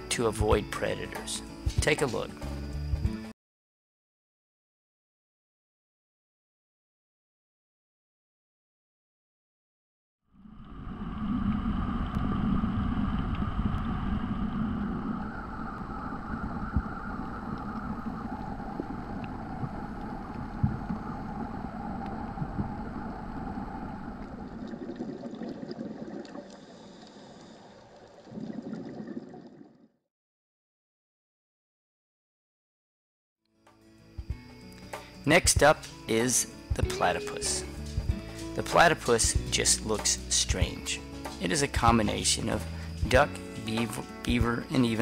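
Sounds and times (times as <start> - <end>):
underwater motor hum: 10.4 - 29.9.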